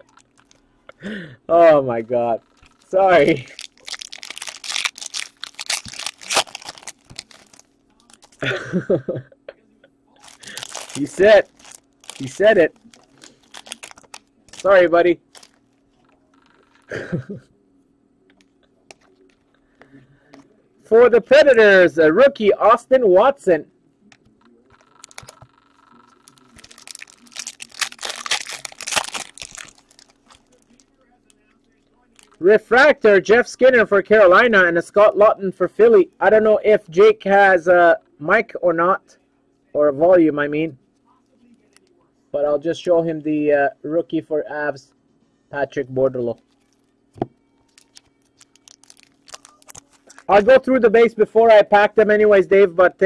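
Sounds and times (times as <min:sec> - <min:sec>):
plastic packaging crinkling: 0:00.0 - 0:00.6, 0:02.4 - 0:08.5, 0:10.2 - 0:16.1, 0:24.7 - 0:30.9, 0:32.0 - 0:32.4, 0:47.6 - 0:50.5.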